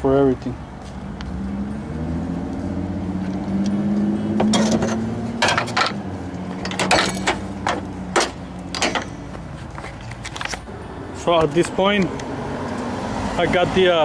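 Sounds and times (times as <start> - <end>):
pliers clicking and clanking: 4.4 - 10.7.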